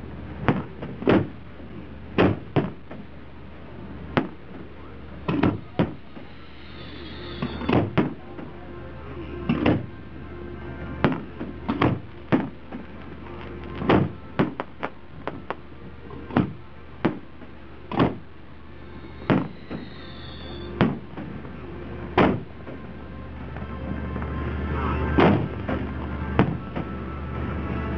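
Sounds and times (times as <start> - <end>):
fireworks booming: 2.1 - 3.1, 4.1 - 4.6, 5.3 - 8.2, 11.0 - 15.6, 16.3 - 21.5, 25.2 - 26.9
high whistle: 5.7 - 7.9, 18.7 - 21.0.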